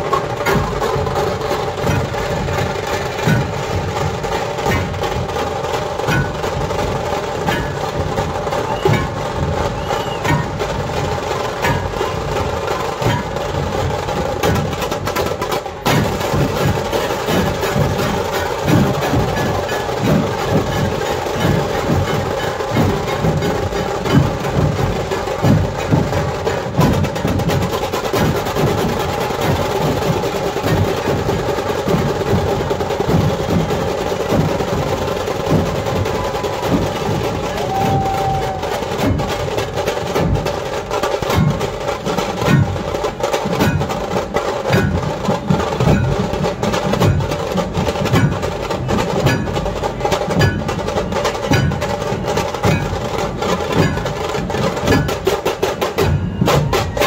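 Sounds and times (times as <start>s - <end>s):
barrel drums beaten: 0.0s - 57.0s
sharp drum cracks: 0.0s - 57.0s.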